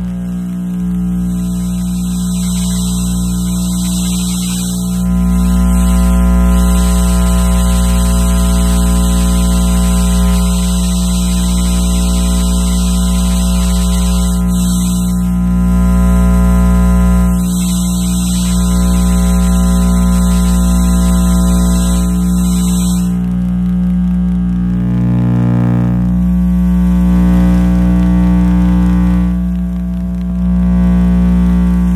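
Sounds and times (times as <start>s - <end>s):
dense electrical hum: 0.0s - 31.9s
strong low buzz: 0.0s - 31.9s
high hiss: 1.3s - 8.1s.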